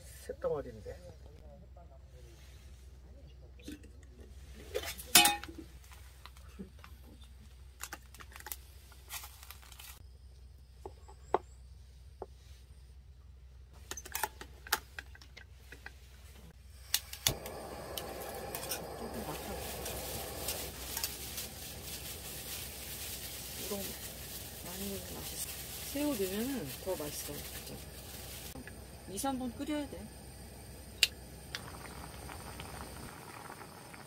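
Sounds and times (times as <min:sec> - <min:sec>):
metal mess tin clinking: 0:04.8 - 0:05.6
steady low hum: 0:16.5 - 0:34.0
vegetables sizzling in a pot: 0:17.0 - 0:34.0.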